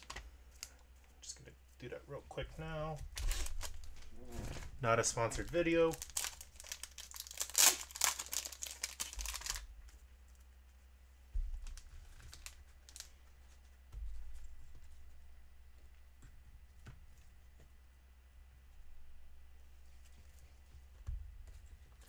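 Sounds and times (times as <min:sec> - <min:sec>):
plastic packaging crinkling and tearing: 0:00.0 - 0:00.8, 0:03.1 - 0:04.2, 0:05.2 - 0:09.7, 0:11.6 - 0:13.1.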